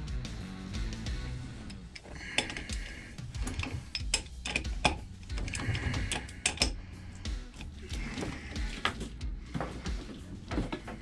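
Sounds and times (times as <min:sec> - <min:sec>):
quiet background music: 0:00.0 - 0:11.0
metal tool clinking on engine: 0:03.5 - 0:06.7.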